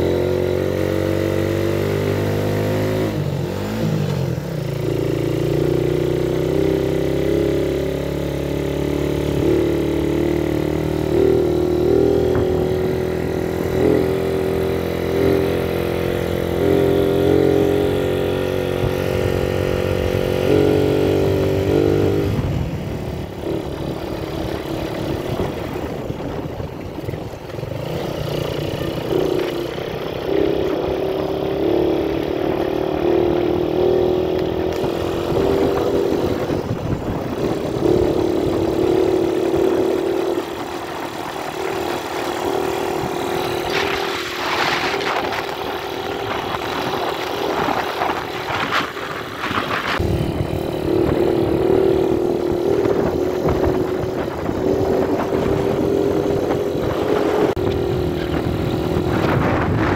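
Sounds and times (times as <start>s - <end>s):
small motorcycle engine running: 0.0s - 59.9s.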